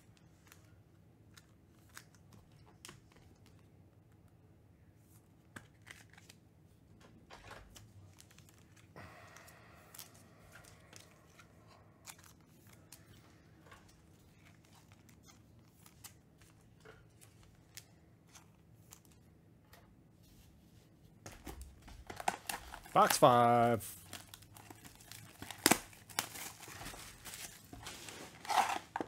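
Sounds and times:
low steady hum: 0:00.0 - 0:29.0
trading cards clicking and rustling: 0:05.5 - 0:06.4, 0:07.0 - 0:19.3, 0:21.2 - 0:29.0
wrapper crinkling: 0:22.0 - 0:29.0.

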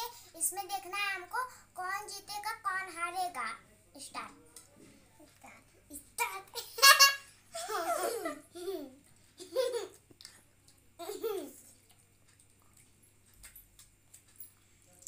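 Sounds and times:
children laughing and giggling: 0:06.5 - 0:10.2, 0:11.0 - 0:11.7.

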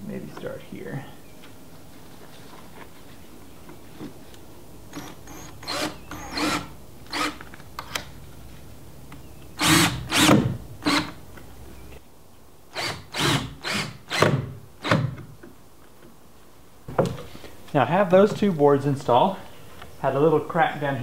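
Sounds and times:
cordless drill whirring: 0:04.9 - 0:07.4, 0:09.6 - 0:11.2.

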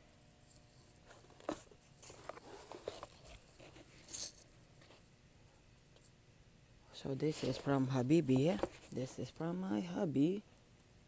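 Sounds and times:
cardboard box rustling and scraping: 0:01.0 - 0:05.0, 0:07.3 - 0:09.0.

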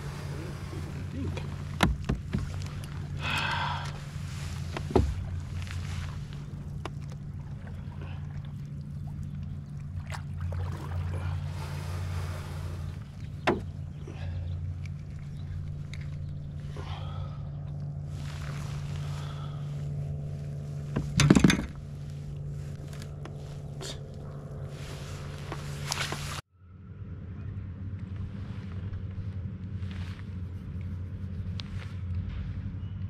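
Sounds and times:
fish handling noises: 0:00.0 - 0:26.4
low hum: 0:00.0 - 0:33.0.

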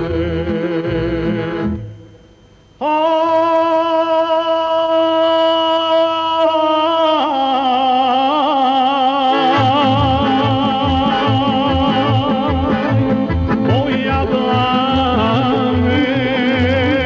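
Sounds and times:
accordion band: 0:00.0 - 0:02.0, 0:09.0 - 0:17.0
man singing long note: 0:00.0 - 0:02.0, 0:02.8 - 0:12.7, 0:13.7 - 0:17.0
pulsing bass rhythm: 0:09.6 - 0:17.0.

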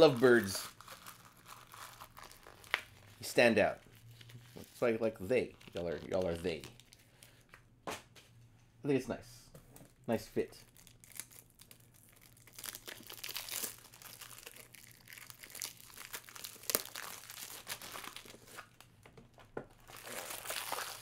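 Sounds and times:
plastic wrapping crinkling and tearing: 0:00.0 - 0:03.2, 0:03.8 - 0:07.1, 0:10.6 - 0:19.0, 0:19.7 - 0:21.0.

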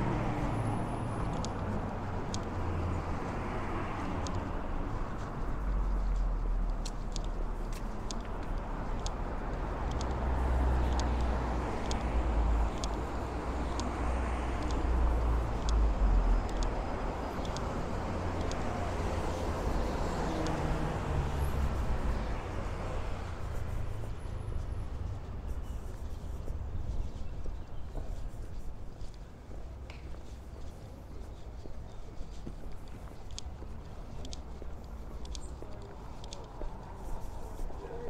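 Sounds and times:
cars driving past: 0:00.0 - 0:27.4
footsteps on pavement: 0:00.0 - 0:38.0.

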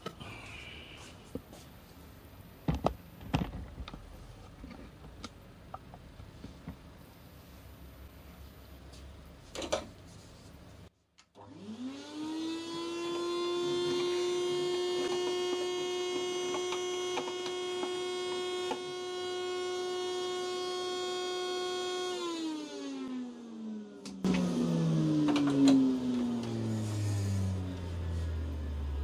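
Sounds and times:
vacuum motor whining: 0:11.4 - 0:29.0.

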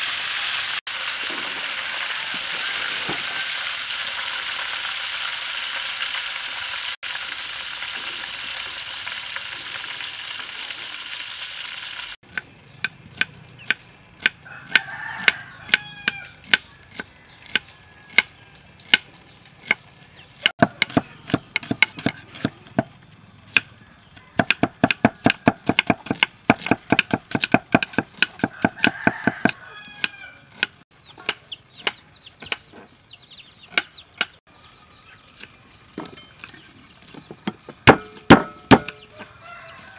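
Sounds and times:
hot oil sizzling: 0:00.0 - 0:12.7
chickens calling: 0:01.3 - 0:04.8, 0:12.7 - 0:26.9, 0:27.6 - 0:39.9
cleaver chopping on wooden board: 0:20.5 - 0:22.9, 0:24.4 - 0:32.6, 0:37.8 - 0:39.0.

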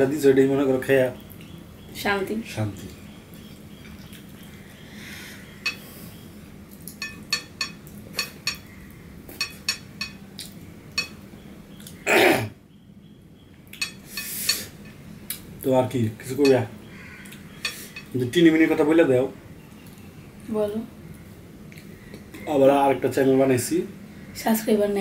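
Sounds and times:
clinks against china: 0:06.9 - 0:08.7, 0:09.3 - 0:10.2, 0:11.0 - 0:11.2, 0:13.8 - 0:15.0, 0:16.4 - 0:16.6.

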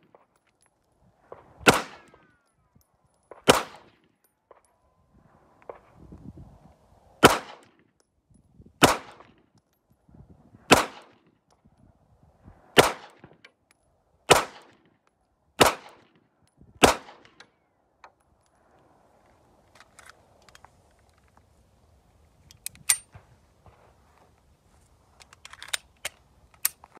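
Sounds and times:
pistol shots: 0:01.6 - 0:02.2, 0:03.4 - 0:04.0, 0:07.2 - 0:07.6, 0:08.8 - 0:09.3, 0:10.7 - 0:11.2, 0:12.8 - 0:13.3, 0:14.3 - 0:14.8, 0:15.6 - 0:16.0, 0:16.8 - 0:17.4.

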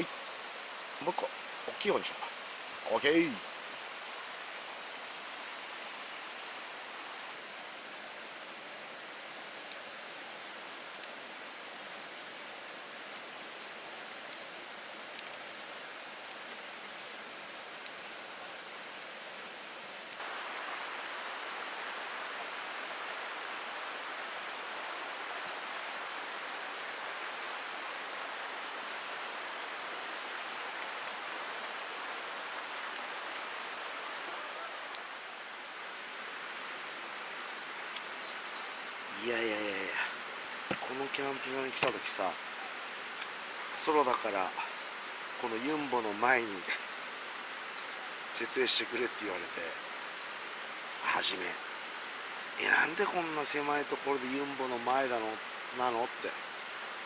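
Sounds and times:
steady rain hiss: 0:00.0 - 0:57.0
faint ticks: 0:10.8 - 0:13.4, 0:14.0 - 0:14.4, 0:15.1 - 0:16.4.

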